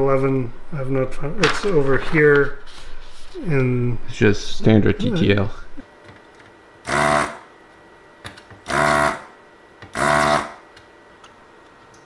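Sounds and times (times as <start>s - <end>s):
desoldering pump buzzing: 3.4s - 12.0s.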